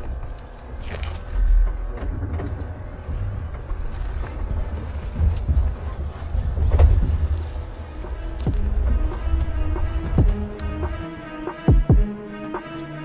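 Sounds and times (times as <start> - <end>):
tyres rumbling on dirt trail: 0.0 - 12.2.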